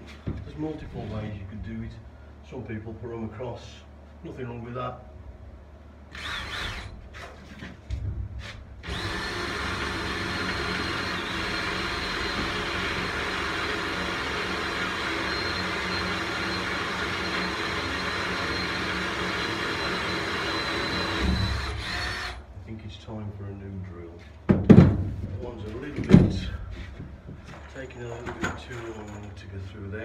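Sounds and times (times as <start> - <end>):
cordless drill boring wood: 6.1 - 6.9, 8.8 - 22.4
drill clicks and short bursts: 6.1 - 7.2, 8.8 - 22.5.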